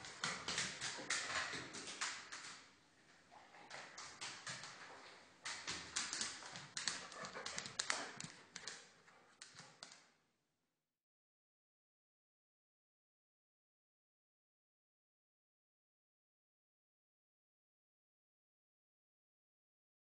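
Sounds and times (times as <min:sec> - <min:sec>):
dog claws on hard floor: 0:00.0 - 0:02.7, 0:03.6 - 0:10.1.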